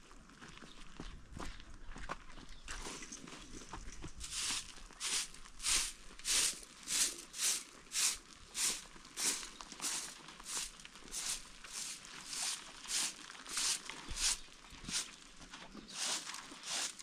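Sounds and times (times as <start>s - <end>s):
faint scuffing: 1.4s - 15.1s
twig broom sweeping dirt: 4.2s - 15.2s, 15.8s - 17.0s.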